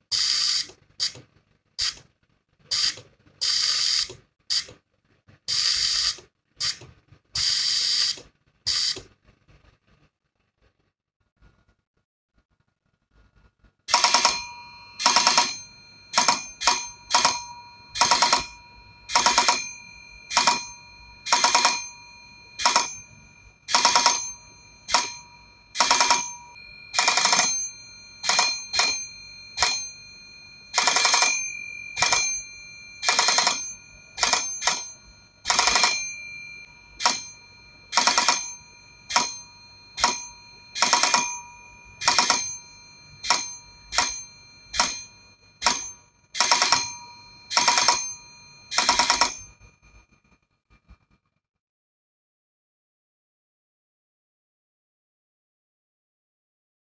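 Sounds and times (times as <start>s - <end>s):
electric bell ringing in bursts: 13.9s - 50.1s.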